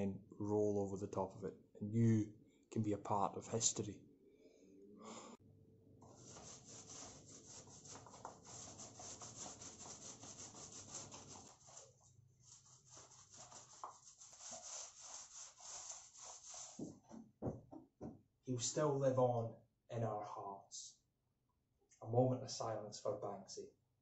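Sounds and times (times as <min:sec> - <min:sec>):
paint roller rubbing on block wall: 0:06.0 - 0:16.9.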